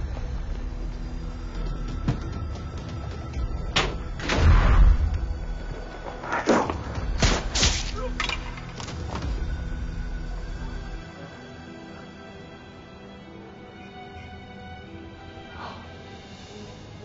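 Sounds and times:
film music: 0.0 - 17.0
gunshot bangs and thuds: 3.8 - 5.1.

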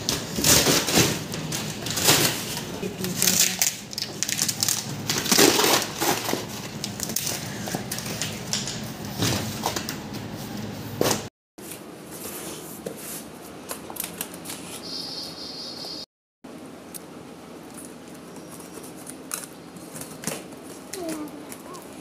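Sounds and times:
cardboard ripping and tearing: 0.0 - 7.2
packing tape tearing: 0.0 - 9.8.

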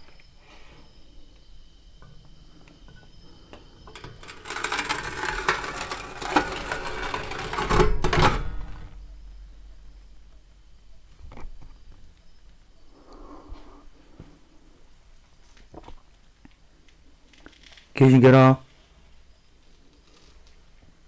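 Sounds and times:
metal door scraping and rattling: 3.7 - 10.0.

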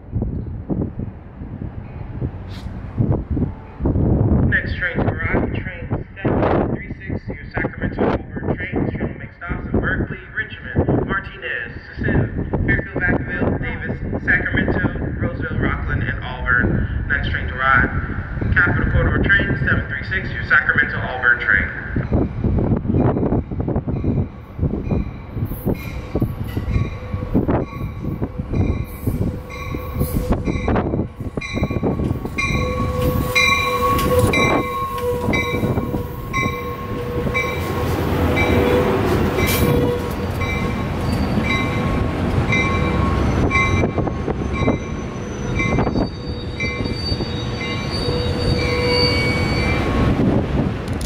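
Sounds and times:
train brakes squealing: 28.6 - 30.7, 32.1 - 42.0, 42.6 - 50.1.

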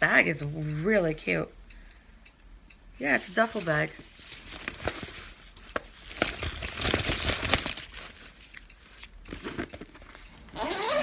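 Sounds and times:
fabric bag rustling and crinkling: 3.6 - 11.0.

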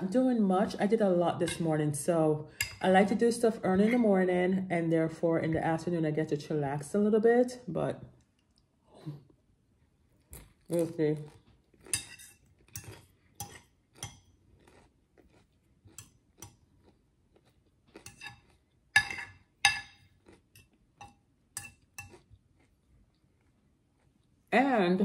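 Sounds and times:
cutlery clinking against dish: 11.9 - 14.3, 18.0 - 22.3.

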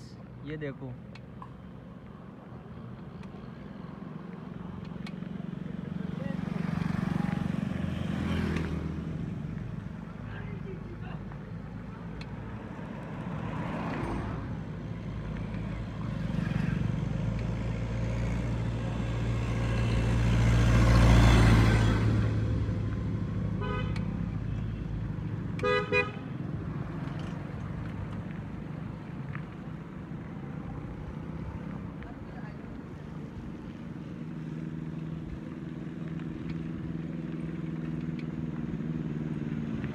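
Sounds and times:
vehicle passing: 5.2 - 37.4
vehicle horn beeping: 23.6 - 24.1, 25.6 - 26.2.

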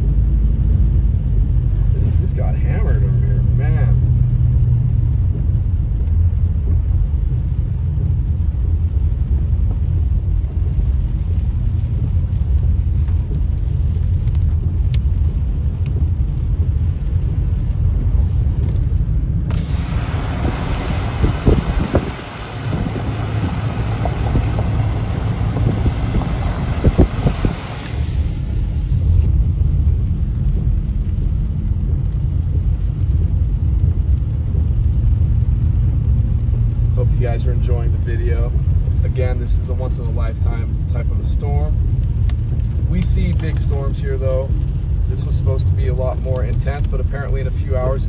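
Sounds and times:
engine and tyre rumble: 0.0 - 48.0
loud rushing hiss: 19.5 - 28.6.

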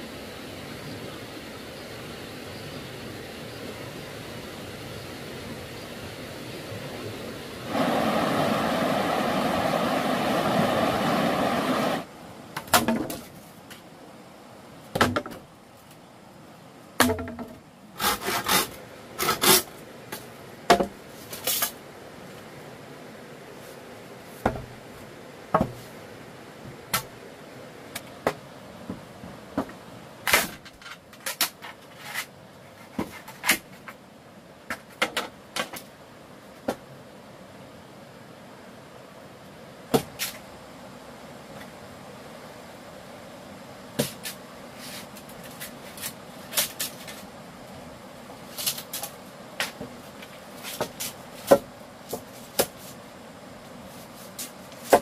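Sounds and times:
loud rushing noise: 7.6 - 12.1
wood knocking and tapping: 17.0 - 17.6, 24.4 - 24.7, 25.5 - 25.8.

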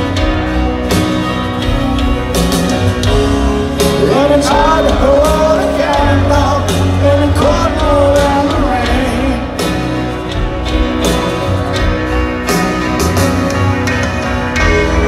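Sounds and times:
piano: 0.0 - 15.0
rock band playing a slow ballad: 0.0 - 15.0
person singing: 3.7 - 10.1.

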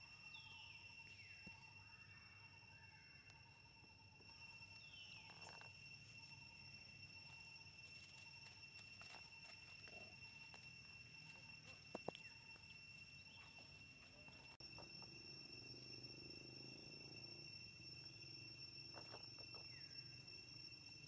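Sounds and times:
high insect drone: 0.0 - 21.0.

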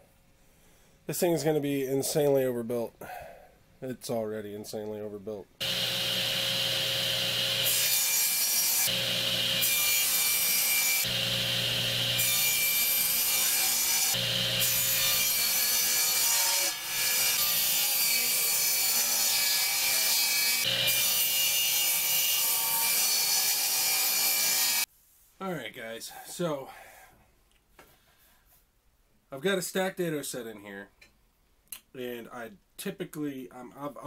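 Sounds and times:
table saw cutting plywood: 5.6 - 24.8.

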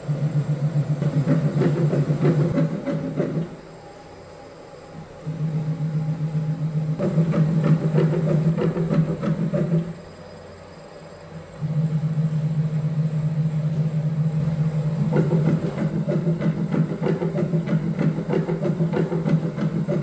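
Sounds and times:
rapid irregular clicking and clatter: 0.0 - 3.6, 5.3 - 10.1, 12.6 - 20.0
stepper motors humming: 0.0 - 20.0.

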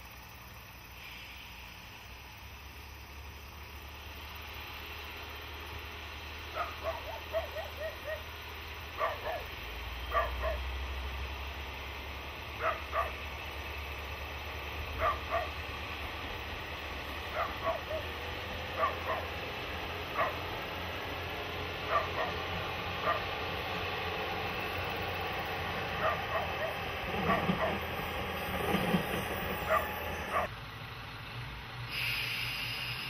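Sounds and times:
dog barking: 6.5 - 8.3, 9.0 - 9.5, 10.1 - 10.7, 12.6 - 13.2, 15.0 - 15.6, 17.3 - 18.1, 18.8 - 19.3, 20.2 - 20.4, 21.9 - 22.4, 23.0 - 23.3, 26.0 - 27.9, 29.6 - 30.5.

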